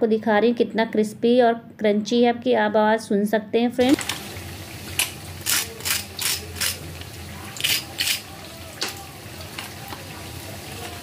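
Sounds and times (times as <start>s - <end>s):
fork crunching crispy fried food: 5.4s - 6.8s.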